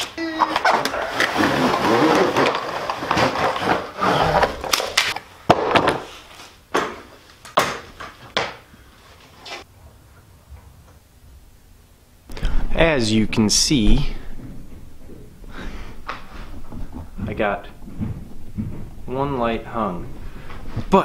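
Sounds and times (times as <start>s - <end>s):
box rustling and scraping: 0.5s - 5.1s.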